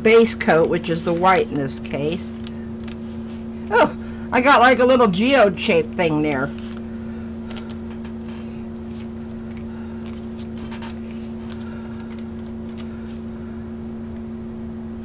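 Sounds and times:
steady two-tone electrical hum: 0.0 - 15.0
paper rustling: 2.2 - 3.7, 6.4 - 13.2.

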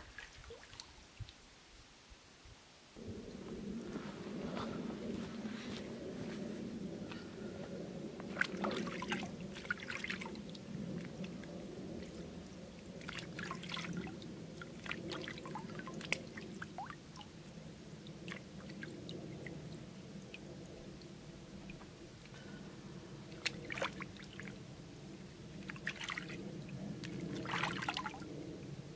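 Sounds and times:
water dripping: 8.2 - 22.4.

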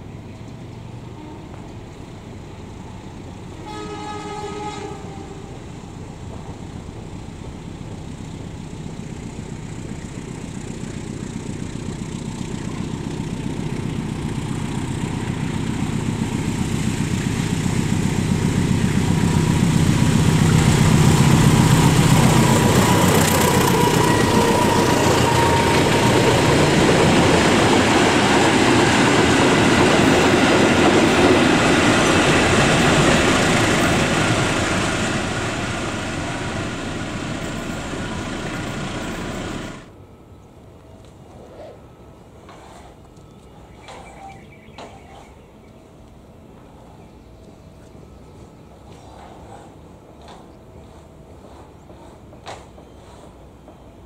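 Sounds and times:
diesel locomotive engine: 0.0 - 54.0
locomotive horn blast: 3.6 - 5.6, 22.4 - 26.5
train wheels clickety-clack: 6.2 - 8.2, 8.8 - 39.9, 48.8 - 54.0.

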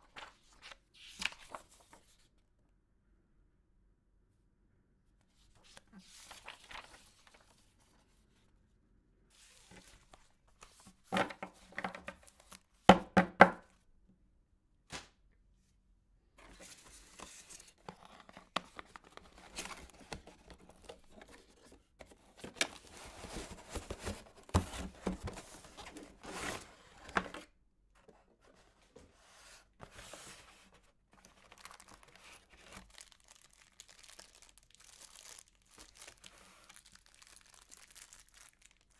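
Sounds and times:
cardboard box rustling: 16.4 - 27.5
plastic bags crinkling: 31.3 - 38.9.

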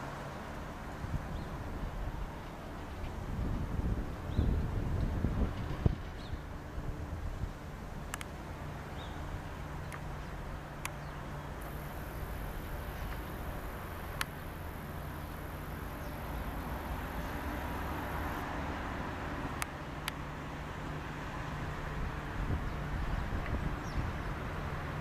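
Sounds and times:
distant steam locomotive rumble: 0.0 - 21.0
sharp clicks: 14.1 - 14.4.

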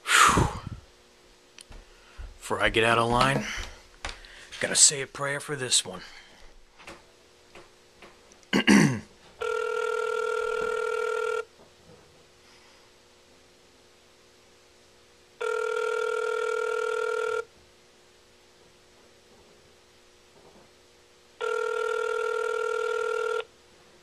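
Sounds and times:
telephone ringback tone: 9.4 - 11.5, 15.4 - 17.5, 21.4 - 23.5.

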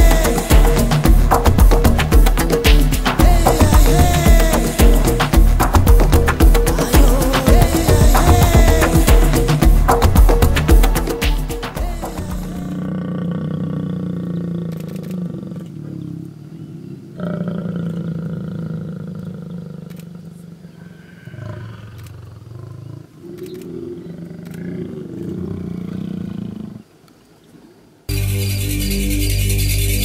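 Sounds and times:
loud music: 0.0 - 12.8, 28.1 - 30.0
lions growling: 12.7 - 26.9.

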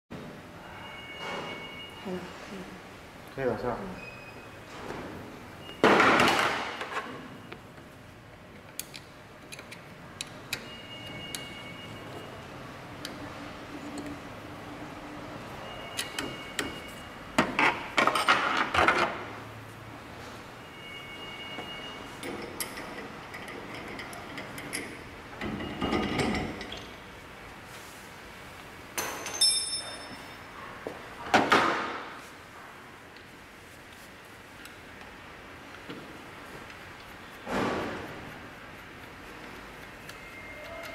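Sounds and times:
metal clicks and taps: 8.6 - 11.5
metal clank ringing: 29.0 - 30.4.

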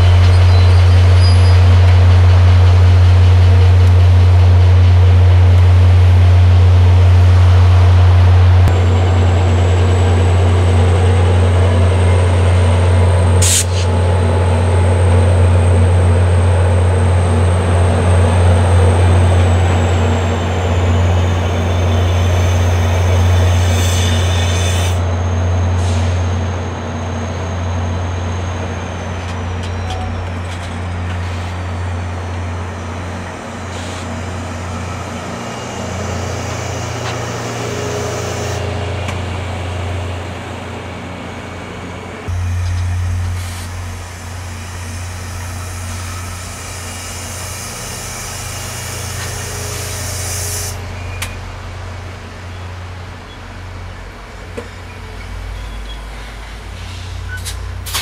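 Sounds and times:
diesel locomotive engine rumble: 0.0 - 58.0
train cars rumbling past: 0.0 - 58.0
high squeal: 19.8 - 30.5, 42.3 - 51.5.

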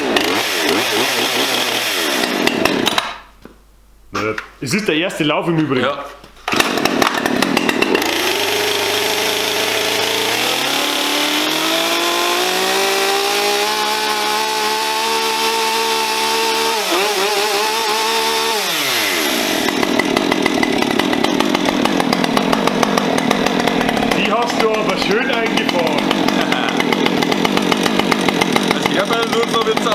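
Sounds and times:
chainsaw revving: 0.0 - 3.1, 6.5 - 29.9.

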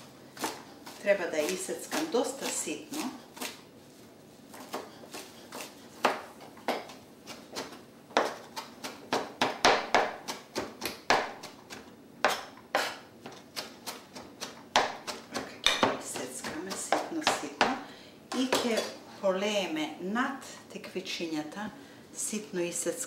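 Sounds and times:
knife chopping on cutting board: 4.6 - 18.9.

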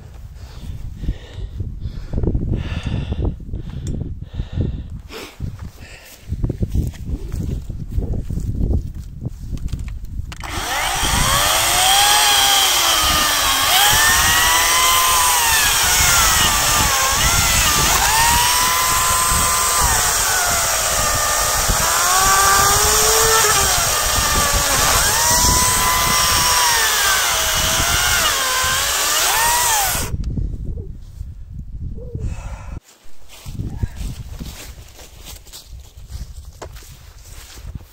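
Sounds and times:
cordless chainsaw cutting wood: 10.4 - 30.2.

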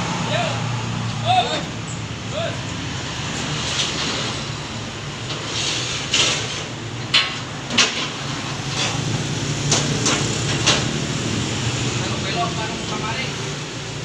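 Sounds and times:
low rumble of street traffic: 0.0 - 14.0
metal clanks and knocks: 5.2 - 9.1, 9.7 - 11.0.

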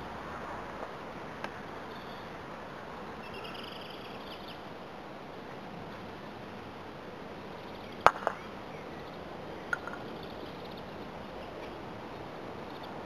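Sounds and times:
mallet knocking ball: 8.1 - 8.4.

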